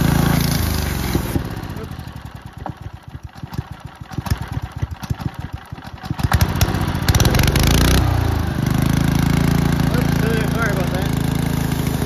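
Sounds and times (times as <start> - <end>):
small petrol engine running: 0.0 - 12.0
loud hissing burst: 10.5 - 12.0.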